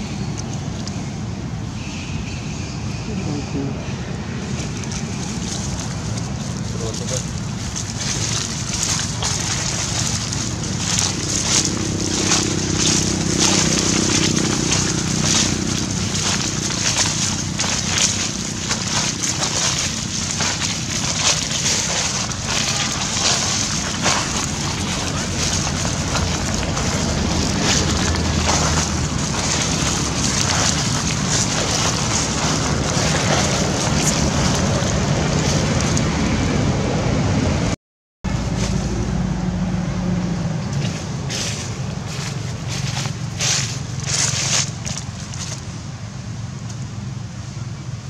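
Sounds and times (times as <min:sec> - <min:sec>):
wind buffeting microphone: 0:04.0 - 0:37.7.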